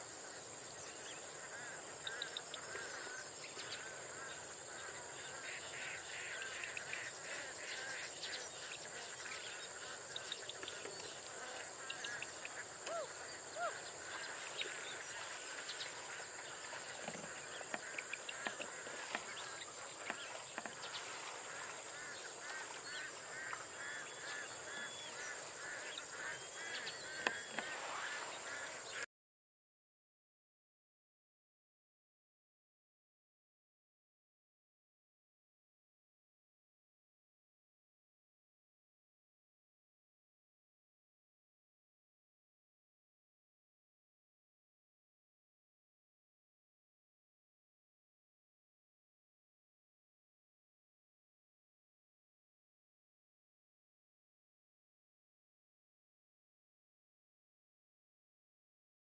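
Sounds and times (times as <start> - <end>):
ducks quacking: 0.2 - 29.1.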